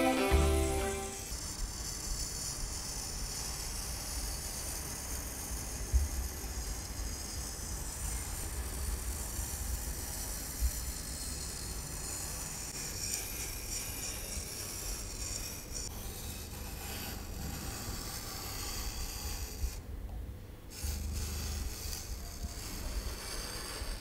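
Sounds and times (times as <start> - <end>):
pen scratching on paper: 20.7 - 24.0.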